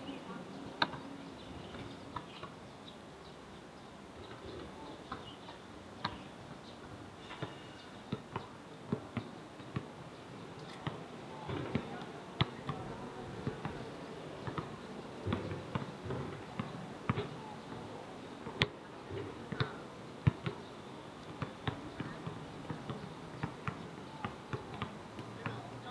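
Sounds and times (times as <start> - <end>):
basketballs bouncing on court: 7.4 - 9.9, 10.8 - 17.8, 18.4 - 20.6, 21.2 - 25.9.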